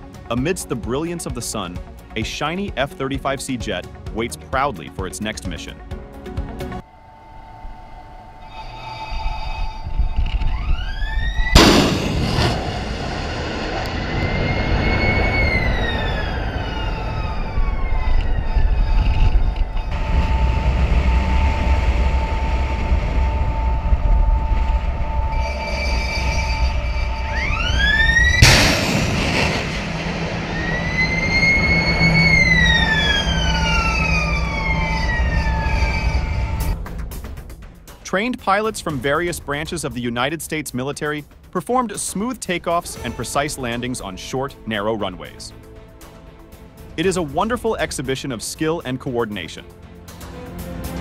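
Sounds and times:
low rumble of engines and wind: 5.8 - 51.0
jet aircraft passing: 6.8 - 40.0.

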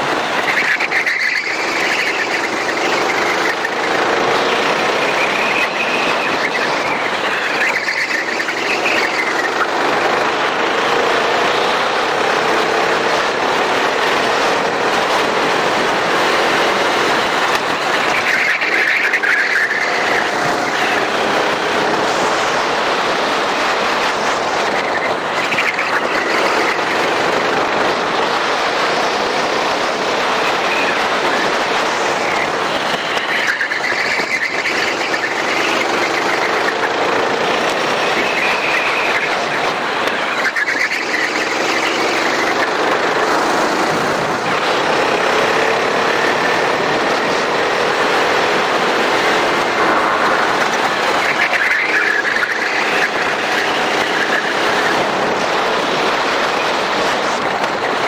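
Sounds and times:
tyre squeals: 0.0 - 10.3, 16.1 - 22.0, 30.4 - 55.4
go-kart engine running hard: 0.0 - 58.0
rushing noise: 0.0 - 58.0.

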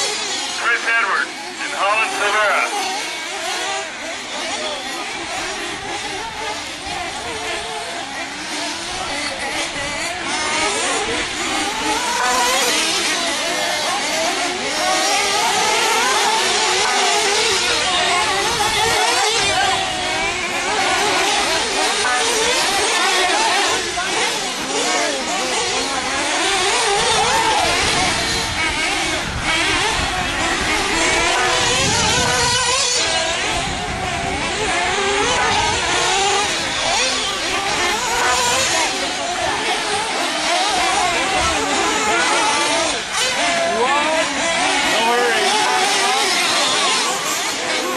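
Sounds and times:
small engines revving: 0.0 - 47.9.

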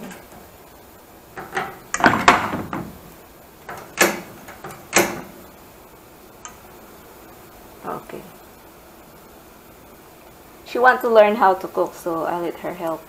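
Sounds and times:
sharp knocks and clunks: 1.4 - 5.4.

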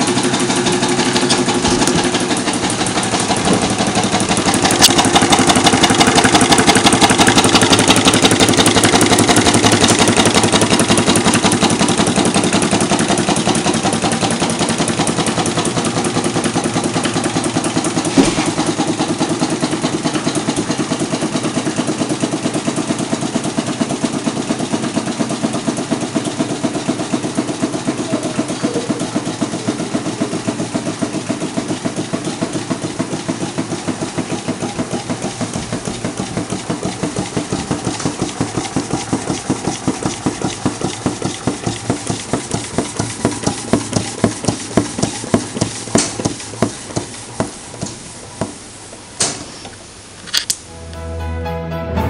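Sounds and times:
engine clicks: 0.0 - 22.8
stirling engine rhythmic knocking: 0.0 - 48.6.

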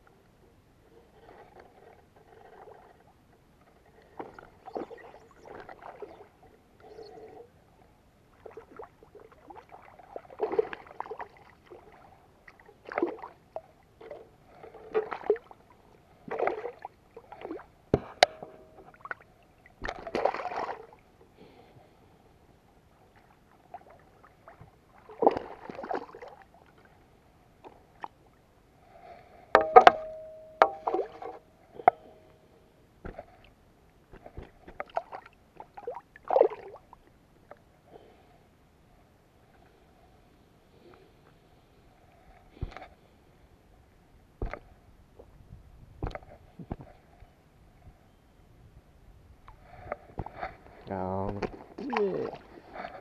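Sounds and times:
fish thrashing and splashing: 19.8 - 21.0.

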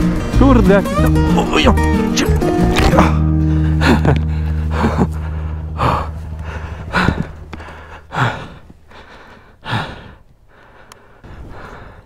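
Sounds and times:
low hum: 1.9 - 10.7
person gasping for breath: 3.0 - 12.0.

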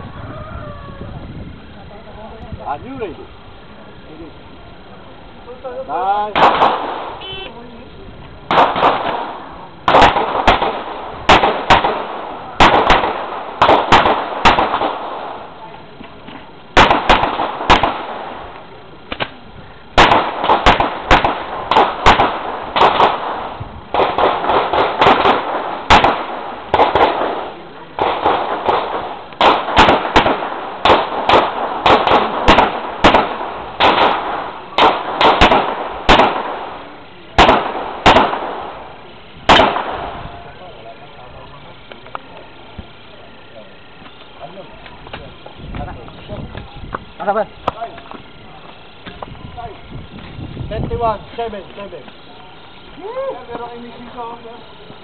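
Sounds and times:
rapid gunshots with echo: 6.3 - 7.2, 8.5 - 15.5, 16.8 - 18.5, 20.0 - 36.8, 37.4 - 38.8, 39.5 - 40.3.

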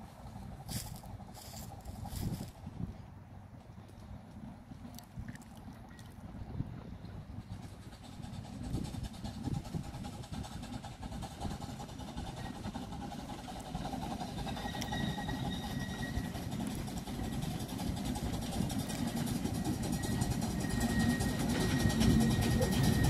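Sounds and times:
steam train rumbling: 0.0 - 4.8, 6.2 - 23.0
faint high-pitched squeal: 14.1 - 23.0.

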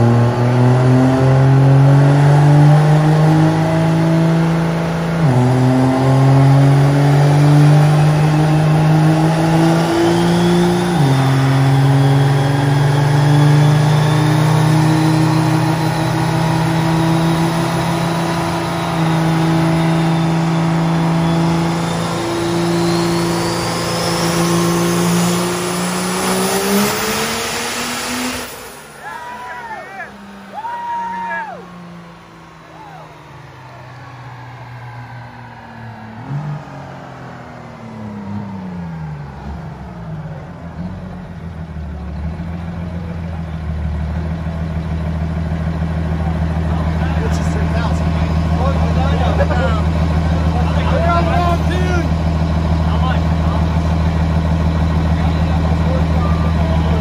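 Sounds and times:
diesel engine full throttle: 0.0 - 57.0.

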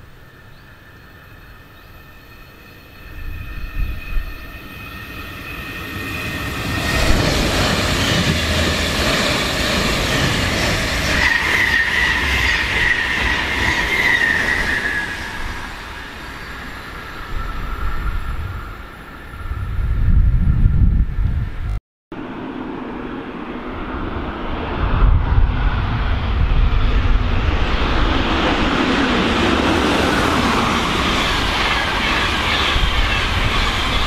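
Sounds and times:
electric train passing: 0.0 - 20.6, 22.2 - 34.0.

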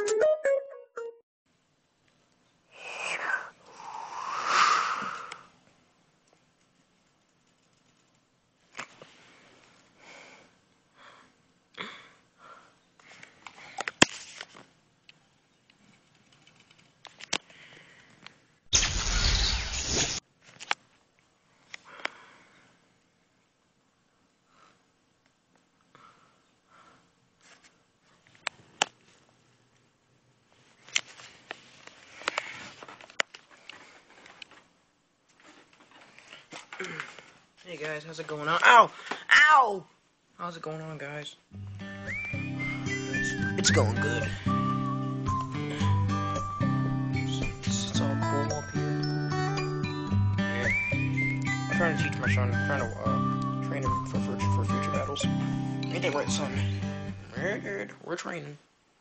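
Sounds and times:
soft handling rustling: 30.4 - 38.6.

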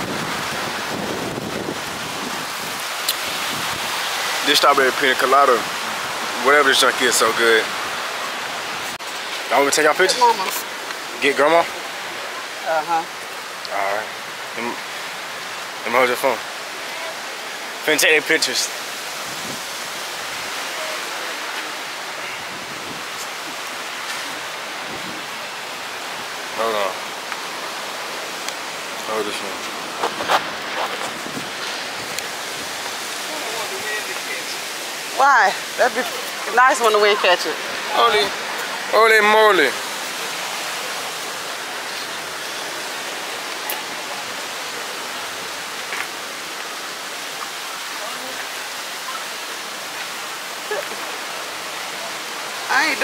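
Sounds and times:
wind on microphone: 0.0 - 4.3, 19.0 - 20.6, 22.2 - 25.4, 29.7 - 33.2
ocean surf on beach: 0.0 - 53.0
sea: 0.0 - 53.0
wind: 0.0 - 53.0.

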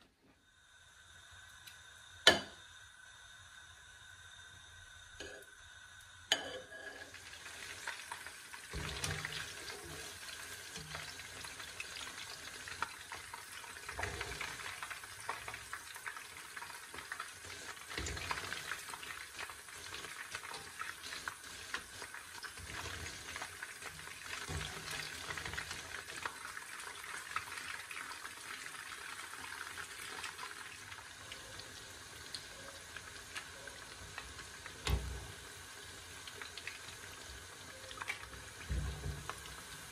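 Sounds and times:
chicken deep-frying in hot oil: 0.0 - 39.9
skimmer knocking in pan: 38.6 - 39.9.

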